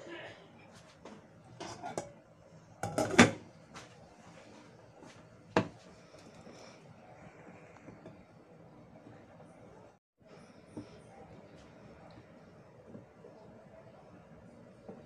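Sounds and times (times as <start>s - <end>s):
lid clattering on pot: 1.6s - 2.2s, 2.8s - 3.4s.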